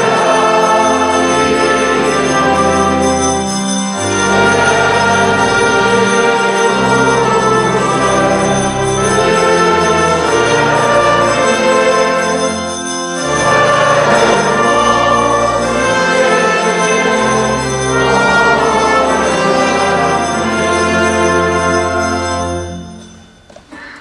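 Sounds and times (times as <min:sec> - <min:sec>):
brass band playing slow chords: 0:00.0 - 0:23.1.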